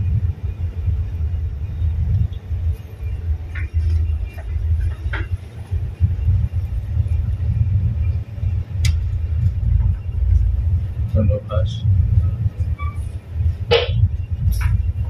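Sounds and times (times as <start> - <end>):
tugboat engine rumble: 0.0 - 15.0.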